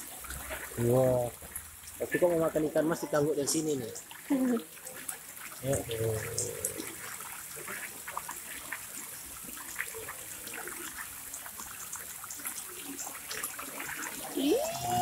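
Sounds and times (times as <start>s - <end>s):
fish splashing and gulping: 4.0s - 15.0s.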